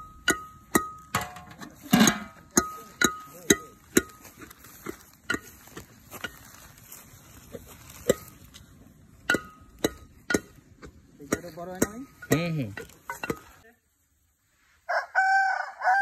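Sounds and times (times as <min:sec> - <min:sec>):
utensils and pots clinking: 0:00.0 - 0:05.6, 0:11.3 - 0:13.6.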